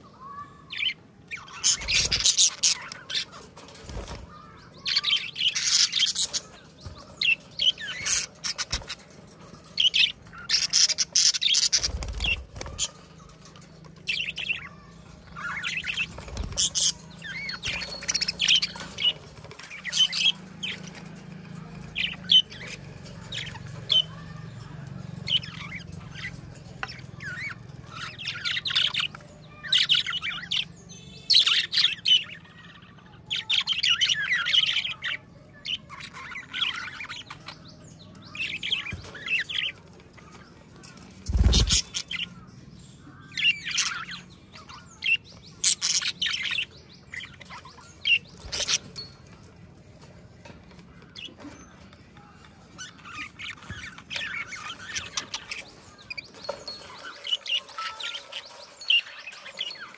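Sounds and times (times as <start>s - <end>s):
budgerigars chirping: 0.8s - 13.3s.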